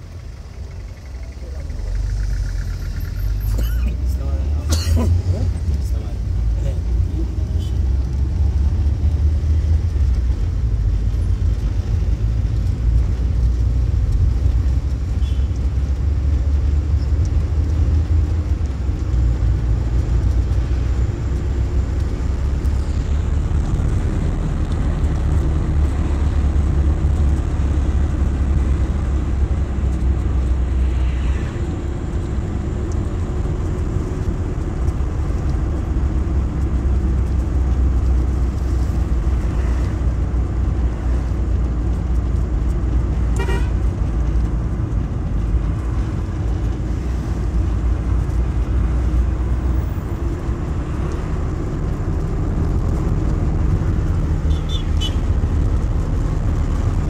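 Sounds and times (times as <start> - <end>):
car engine and road rumble: 0.0 - 57.0.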